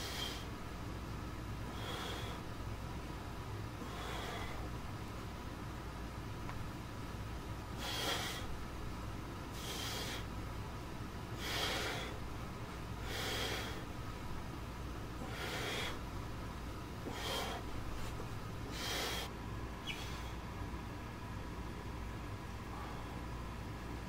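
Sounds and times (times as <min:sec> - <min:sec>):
person breathing forcefully: 0:00.0 - 0:00.6, 0:01.6 - 0:02.6, 0:03.7 - 0:04.8, 0:07.7 - 0:08.6, 0:09.5 - 0:10.4, 0:11.3 - 0:14.1, 0:15.1 - 0:16.2, 0:17.0 - 0:20.5, 0:22.6 - 0:23.4.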